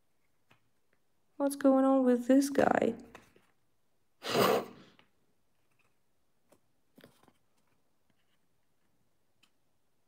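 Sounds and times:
faint paper rustles: 3.0s - 3.7s, 5.4s - 9.6s.

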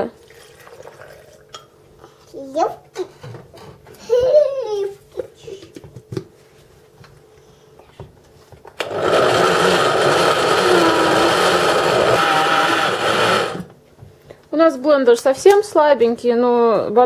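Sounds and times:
blender running: 8.8s - 13.8s.

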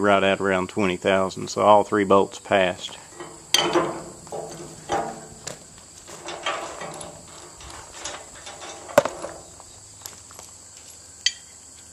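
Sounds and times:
metal bolt and nut handling: 3.1s - 10.2s.

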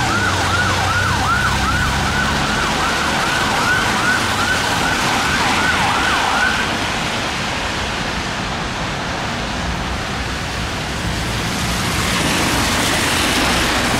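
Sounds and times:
fire engine siren yelping: 0.0s - 7.1s
engines and street traffic rumble: 0.0s - 13.9s.

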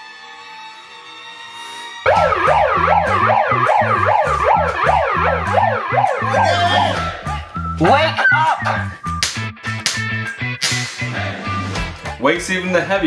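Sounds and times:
siren-style wail: 0.0s - 7.4s
low pulsing beat: 2.1s - 7.4s.

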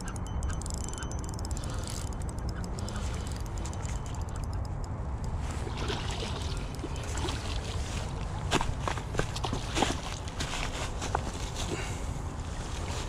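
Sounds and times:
fishing reel cranking: 0.0s - 5.4s
fish splashing in water: 5.6s - 10.4s.

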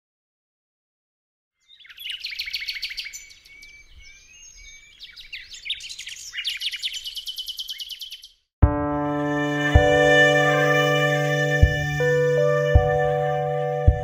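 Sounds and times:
small birds chirping: 1.6s - 8.5s.

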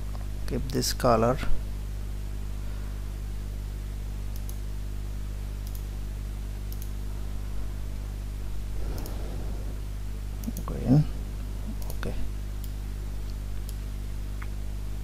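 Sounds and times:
low electrical hum: 0.0s - 15.0s
faint computer mouse clicks: 4.3s - 4.6s, 5.6s - 5.9s.

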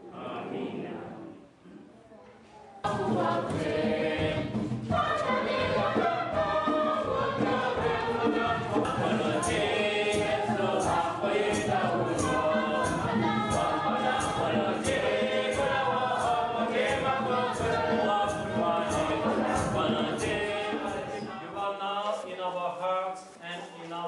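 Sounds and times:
congregation singing a hymn: 0.0s - 1.4s, 2.8s - 23.1s
steady percussive beat: 2.9s - 21.2s.

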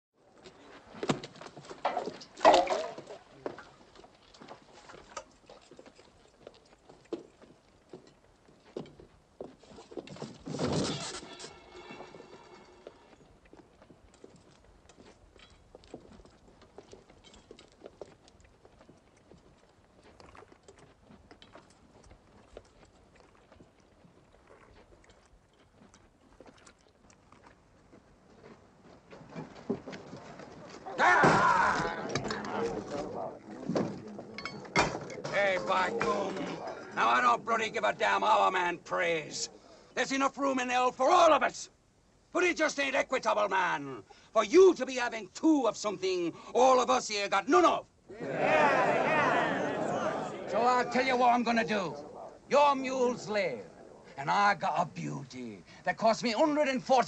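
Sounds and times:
chewing: 3.4s - 10.3s, 13.1s - 30.9s
wordless vocal outburst: 30.8s - 32.8s, 48.1s - 52.4s.

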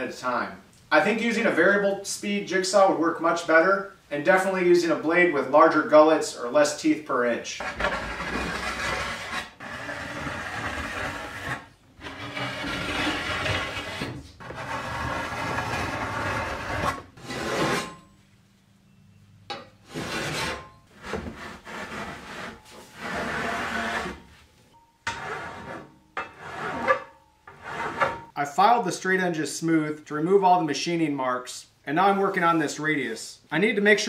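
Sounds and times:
file rasping on aluminum: 7.6s - 18.0s, 19.9s - 24.2s, 25.1s - 28.3s.

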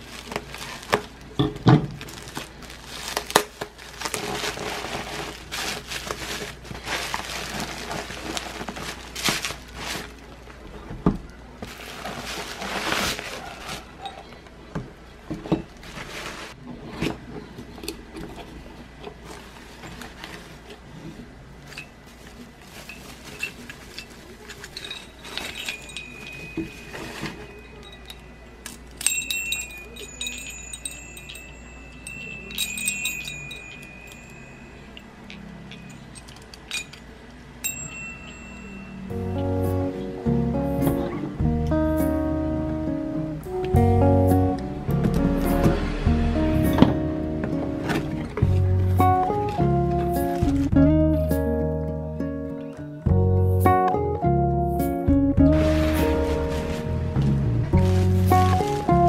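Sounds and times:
plastic wrapping crinkling: 0.0s - 10.9s, 11.6s - 14.1s, 15.7s - 16.7s, 21.6s - 31.4s, 55.5s - 59.0s
small wind chime ringing: 24.8s - 39.2s.

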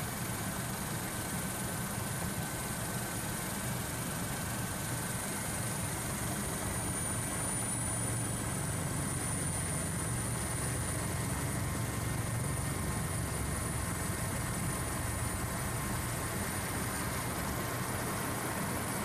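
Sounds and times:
aircraft engines droning: 4.7s - 19.0s.

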